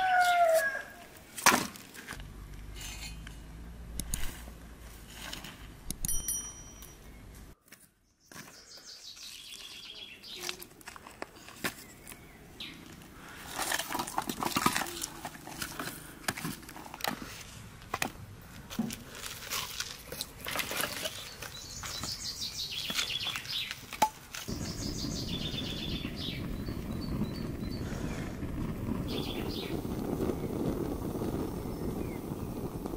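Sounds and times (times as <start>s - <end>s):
small birds chirping: 6.7s - 13.4s, 20.0s - 23.9s, 24.5s - 30.7s, 31.3s - 32.6s
steady low rumble: 24.5s - 32.9s.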